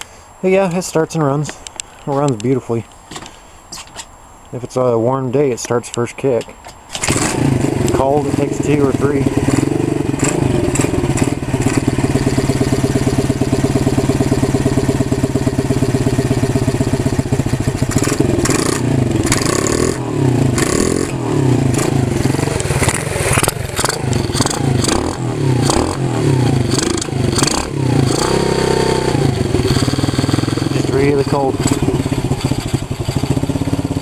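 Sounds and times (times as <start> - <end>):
small motorbike engine revving: 7.0 - 34.0.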